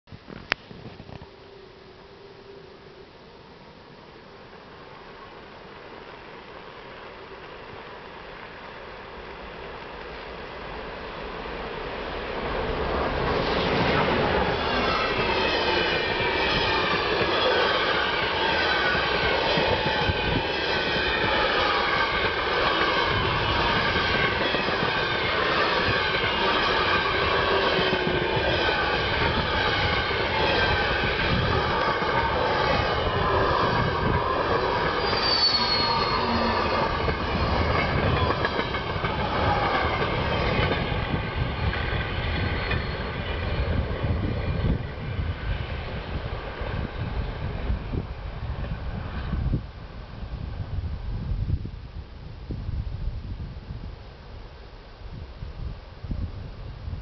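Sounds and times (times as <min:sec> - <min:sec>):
train wheels rumbling on rails: 0:05.6 - 0:51.7
brief high whistle: 0:35.0 - 0:36.5.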